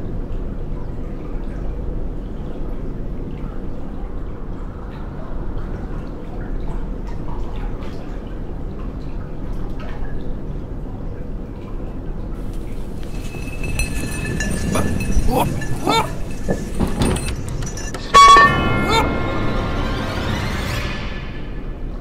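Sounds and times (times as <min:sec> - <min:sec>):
water dripping: 0:00.0 - 0:17.0.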